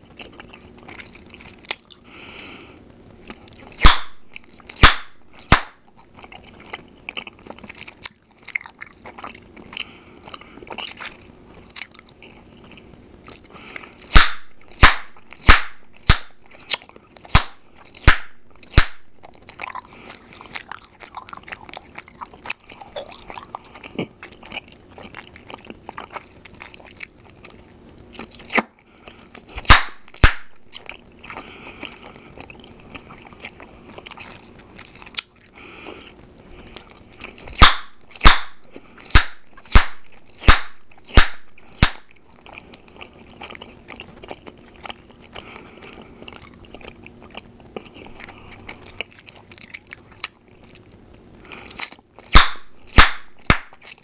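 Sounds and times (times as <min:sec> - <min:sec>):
gum popping: 0:03.2 - 0:09.7, 0:10.7 - 0:28.8, 0:29.4 - 0:35.5, 0:36.6 - 0:45.6, 0:51.7 - 0:54.0
gum chewing clicks: 0:03.2 - 0:35.6, 0:36.2 - 0:54.0.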